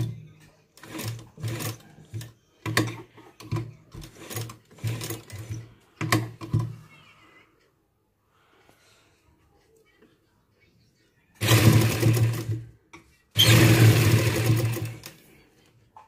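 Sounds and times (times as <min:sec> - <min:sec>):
sewing machine stitching: 0:00.7 - 0:06.6, 0:11.4 - 0:12.7, 0:13.4 - 0:15.2.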